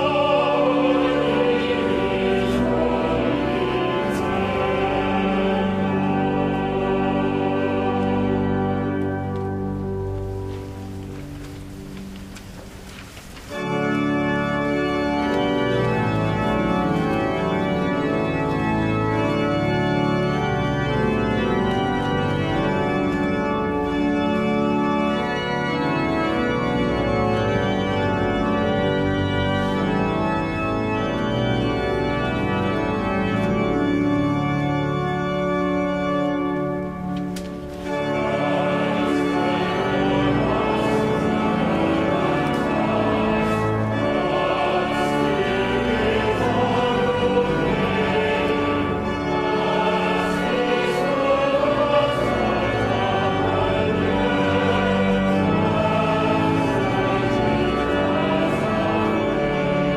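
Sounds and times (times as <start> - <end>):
people singing: 0.0 - 8.8, 38.1 - 59.9
pipe organ playing hymn: 0.0 - 59.9.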